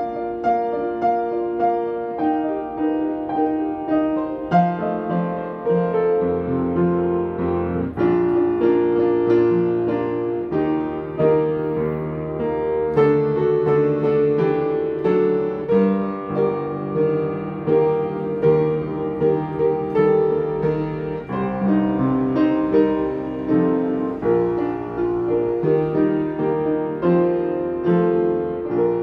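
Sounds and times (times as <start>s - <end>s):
piano playing hymn chords: 0.0s - 29.0s.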